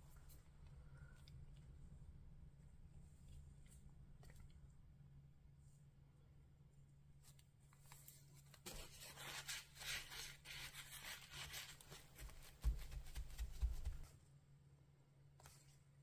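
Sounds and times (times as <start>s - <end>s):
tissue rubbing on paper: 8.6s - 14.1s.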